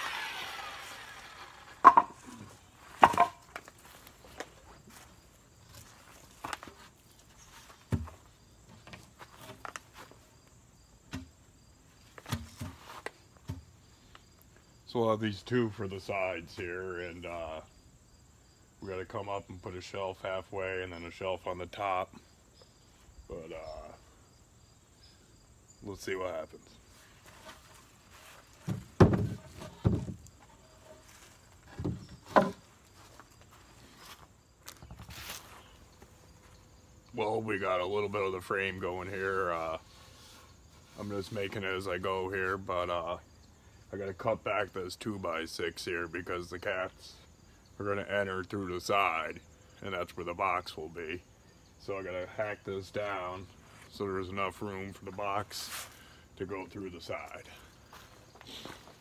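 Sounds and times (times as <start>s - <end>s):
crickets chirping: 0.0s - 59.0s
wooden boards knocking: 1.8s - 2.2s, 3.0s - 3.4s, 28.6s - 30.2s, 31.7s - 32.6s.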